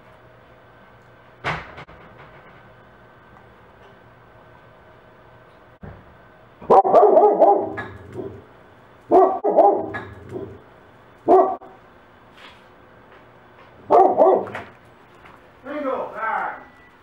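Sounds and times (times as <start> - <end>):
dog barking: 6.6 - 8.4, 9.1 - 10.6, 11.2 - 11.8, 13.8 - 14.7.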